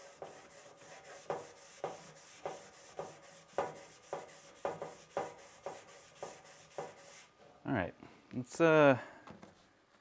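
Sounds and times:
scrubber pad rubbing steel: 0.0s - 7.3s.

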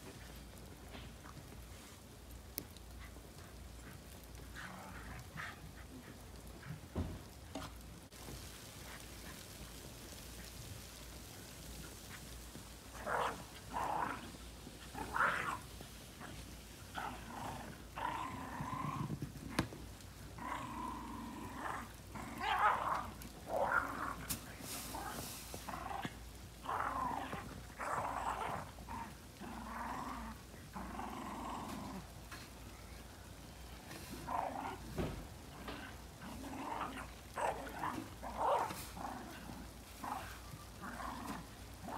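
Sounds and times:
dogs growling while play-fighting: 2.6s - 6.8s, 12.1s - 32.4s, 33.7s - 41.9s.

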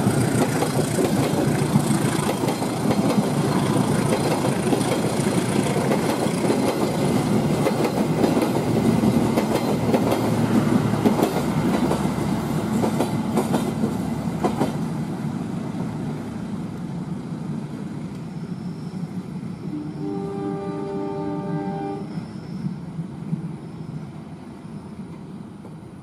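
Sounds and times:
train wheels clicking over rail joints: 0.0s - 14.9s.

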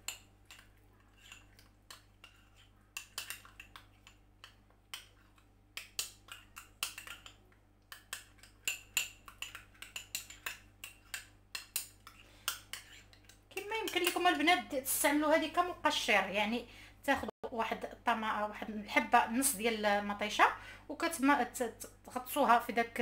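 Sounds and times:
spoon stirring paste in glass bowl: 0.0s - 16.0s.

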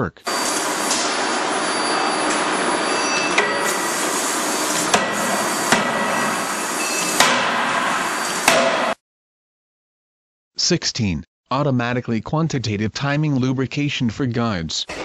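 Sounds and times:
forging hammer blows: 0.3s - 9.0s
loud machine noise: 0.3s - 9.0s.

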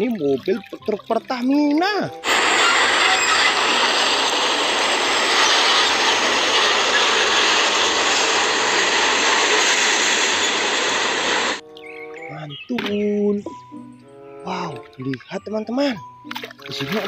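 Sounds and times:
truck engine and tyre noise: 2.4s - 11.6s.

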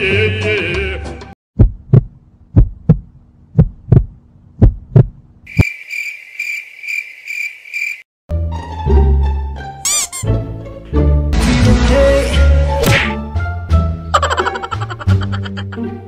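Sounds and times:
heartbeat thumps: 1.6s - 5.3s
cricket chirping: 5.5s - 8.1s.

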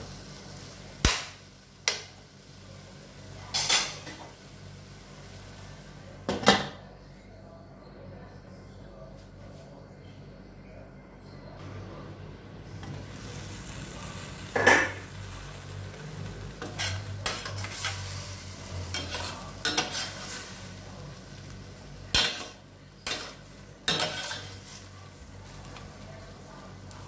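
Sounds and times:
faint sizzle: 0.0s - 27.0s
metal spoon scraping frying pan: 16.6s - 20.6s, 22.1s - 24.8s.

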